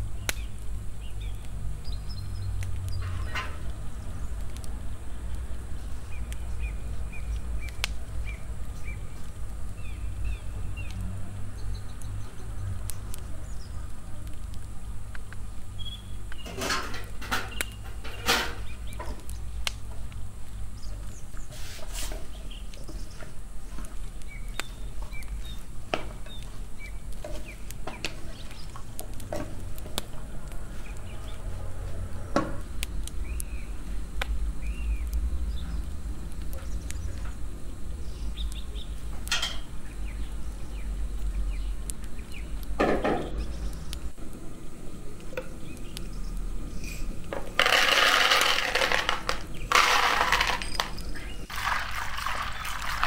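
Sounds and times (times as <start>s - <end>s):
pots and lids clanking: 3.0s - 3.7s, 16.4s - 19.2s, 39.3s - 39.7s
wooden spoon stirring in frying pan: 20.8s - 32.1s.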